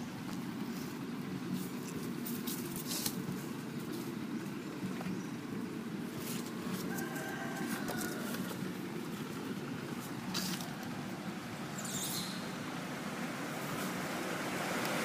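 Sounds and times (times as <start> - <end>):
drawn-out bird call: 3.2 - 15.0.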